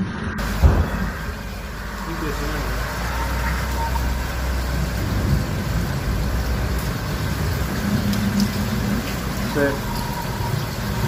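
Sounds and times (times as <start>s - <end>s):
steady rushing noise: 0.0s - 11.0s.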